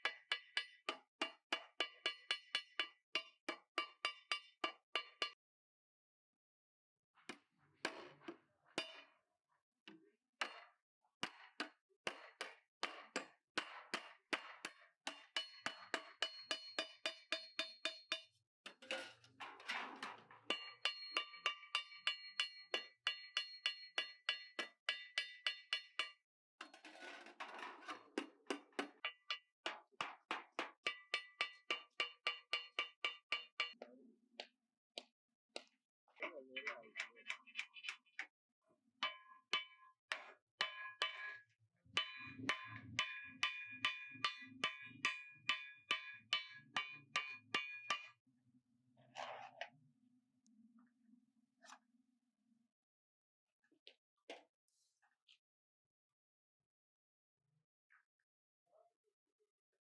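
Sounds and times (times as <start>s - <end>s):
hammer on metal ringing: 15.1s - 18.3s, 20.5s - 26.2s, 30.7s - 33.8s, 42.0s - 48.1s.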